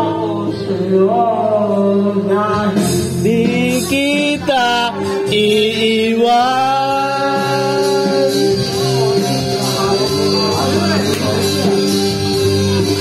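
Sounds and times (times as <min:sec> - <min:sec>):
person singing into microphone: 0:00.0 - 0:10.4
karaoke backing music: 0:00.0 - 0:13.0.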